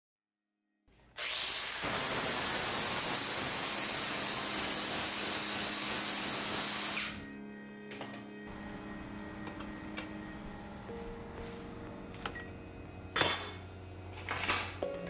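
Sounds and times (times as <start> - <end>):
angle grinder cutting steel: 1.2 - 7.2.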